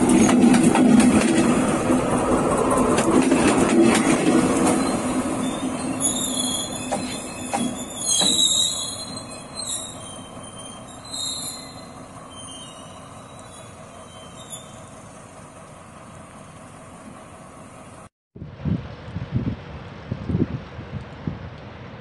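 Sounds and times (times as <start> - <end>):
train rumble: 0.0 - 22.0
railway wheels squealing: 4.0 - 15.6.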